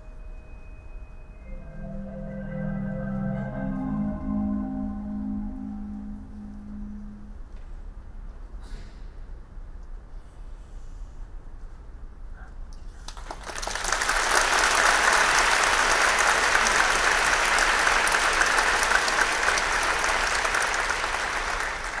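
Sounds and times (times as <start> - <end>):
audience applauding: 13.1 - 22.0.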